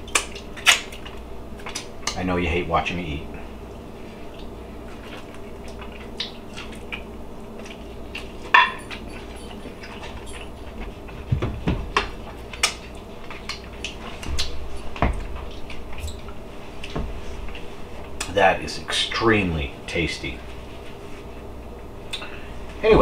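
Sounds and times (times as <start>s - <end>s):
person chewing: 4.2s - 11.1s, 12.2s - 18.3s.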